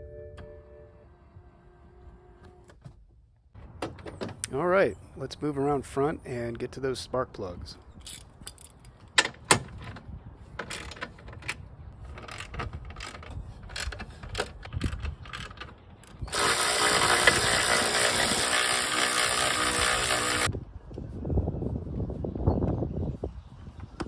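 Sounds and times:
cordless power tool running: 0:16.3 - 0:20.5.

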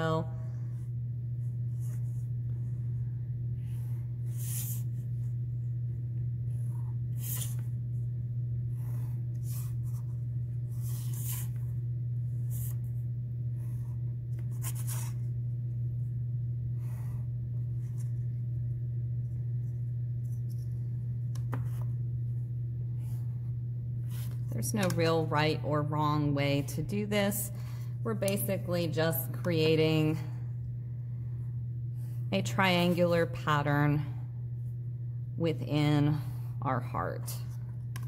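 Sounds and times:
steady low hum: 0:00.0 - 0:38.0
pencil strokes on paper: 0:03.6 - 0:05.3, 0:08.7 - 0:11.7, 0:13.6 - 0:15.3.

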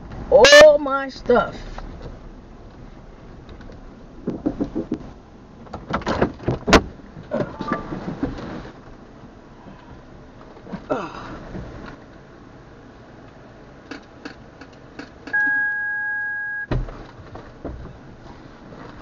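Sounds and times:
knocks and clatters in a car: 0:01.3 - 0:09.0, 0:16.7 - 0:19.0.

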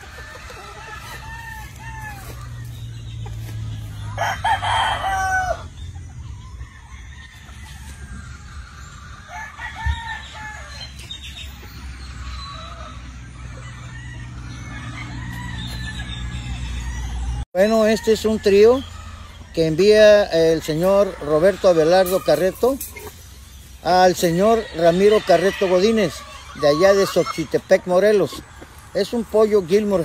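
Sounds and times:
rooster crowing: 0:00.0 - 0:02.7, 0:04.0 - 0:05.7, 0:09.3 - 0:10.9, 0:12.4 - 0:19.6, 0:24.2 - 0:27.4
chickens clucking: 0:00.0 - 0:30.0.

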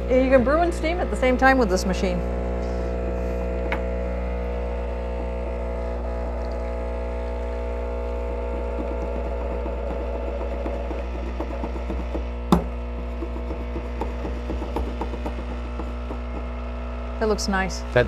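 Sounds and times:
espresso machine pump humming: 0:00.0 - 0:18.0
sharp knock: 0:10.6 - 0:16.7.

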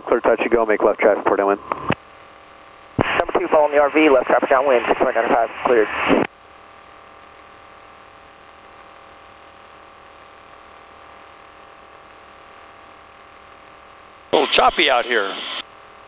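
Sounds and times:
aircraft engine drone through headset: 0:14.4 - 0:15.6.

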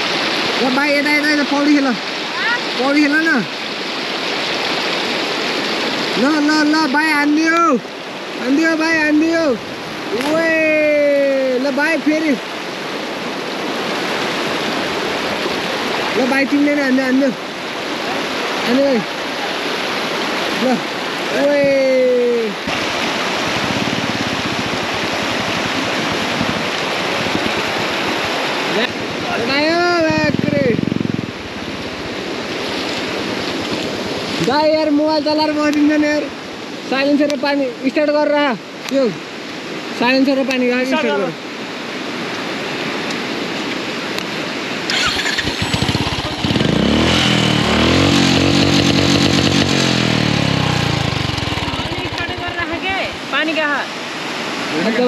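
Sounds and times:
river rushing over stones: 0:00.0 - 0:55.0
motorcycle engine starting and running: 0:22.7 - 0:32.6, 0:44.9 - 0:53.3.

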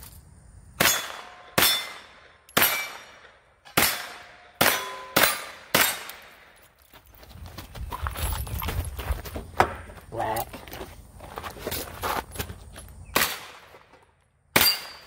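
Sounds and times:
steel target ringing: 0:00.8 - 0:06.1, 0:14.6 - 0:15.0
rifle shots: 0:00.8 - 0:06.5, 0:13.2 - 0:13.8.

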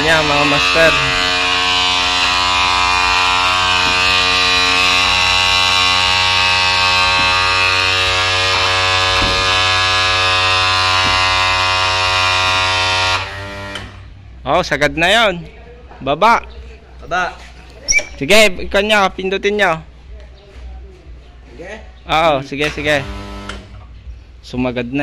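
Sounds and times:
electric motor buzzing hum: 0:00.0 - 0:14.0, 0:23.0 - 0:23.7.

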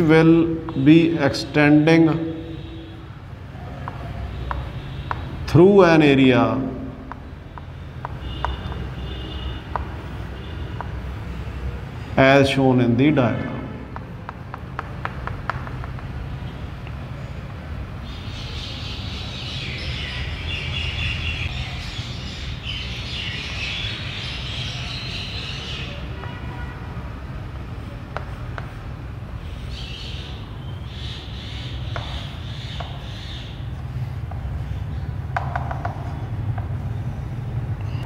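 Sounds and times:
chalk tapping on board: 0:03.7 - 0:05.4, 0:07.0 - 0:09.0, 0:09.6 - 0:10.1, 0:10.7 - 0:11.1, 0:13.8 - 0:16.2, 0:27.9 - 0:29.0, 0:31.8 - 0:37.0
chalk scratching on chalkboard: 0:27.6 - 0:29.8, 0:31.9 - 0:37.0.

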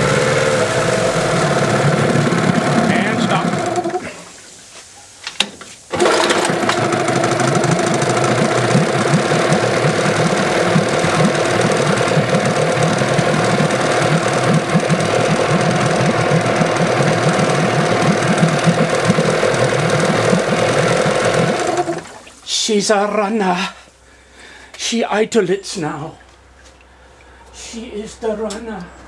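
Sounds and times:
outboard engine idling: 0:00.0 - 0:04.1, 0:05.9 - 0:22.3.

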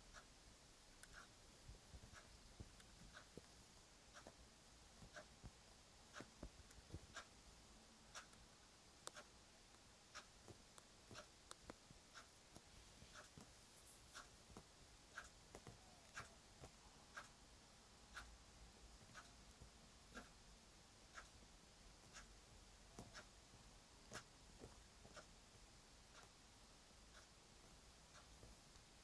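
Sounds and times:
faint soft ticks: 0:01.0 - 0:07.3, 0:09.0 - 0:17.4, 0:19.0 - 0:20.4, 0:22.0 - 0:26.4, 0:27.0 - 0:29.0.

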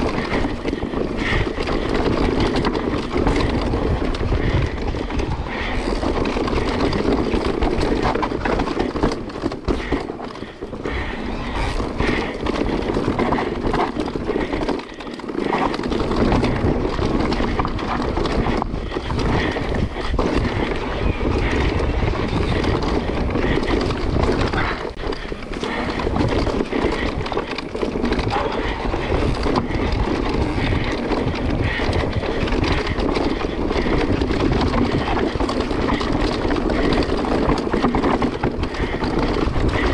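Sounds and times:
bike rattling over rough ground: 0:00.0 - 0:39.9
tyre and wind rush: 0:00.0 - 0:39.9.

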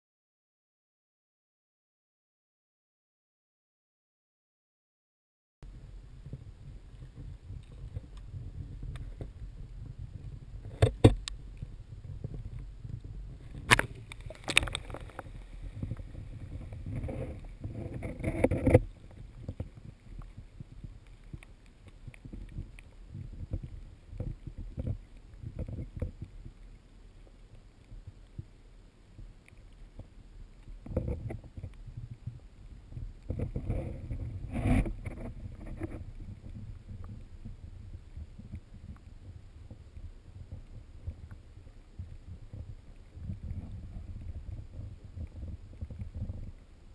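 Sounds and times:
muffled underwater rumble: 0:05.6 - 0:46.9
water sloshing: 0:10.6 - 0:26.1.

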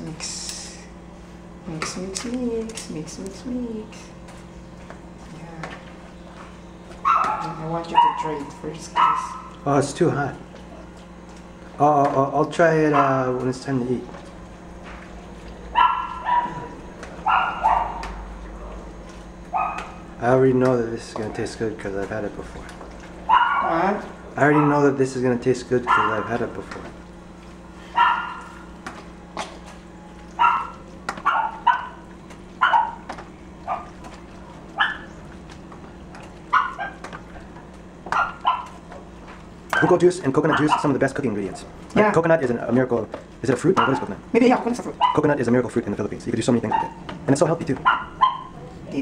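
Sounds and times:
dog yapping: 0:07.0 - 0:09.6, 0:12.9 - 0:13.2, 0:15.7 - 0:18.2, 0:19.5 - 0:20.1, 0:23.2 - 0:24.9, 0:25.8 - 0:26.4, 0:27.9 - 0:28.7, 0:30.3 - 0:34.1, 0:34.7 - 0:35.3, 0:36.4 - 0:37.5, 0:38.1 - 0:38.8, 0:39.7 - 0:41.7, 0:43.8 - 0:44.1, 0:44.8 - 0:45.3, 0:46.6 - 0:47.1, 0:47.8 - 0:48.8.

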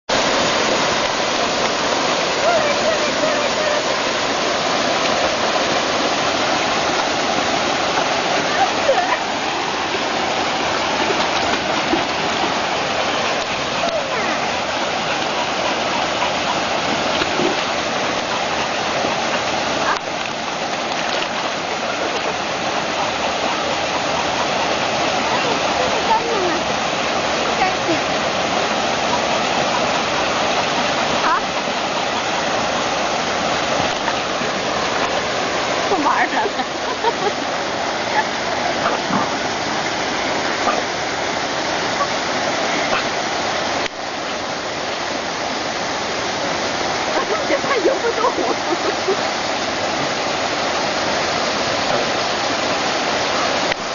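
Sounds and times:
flowing water: 0:00.1 - 0:53.9.

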